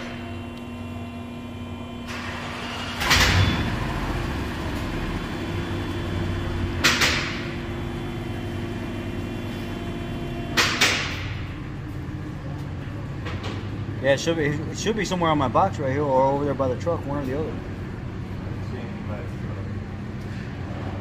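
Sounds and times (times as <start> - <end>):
low shop hum: 0.0 - 21.0.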